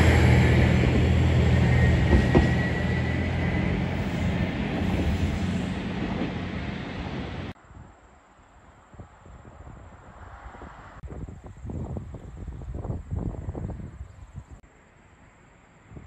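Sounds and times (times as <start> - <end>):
diesel railcar engine drone: 0.0 - 7.6.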